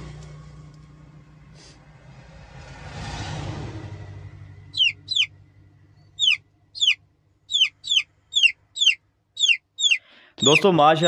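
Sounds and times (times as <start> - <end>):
chicks peeping: 4.7 - 5.3, 6.2 - 10.7.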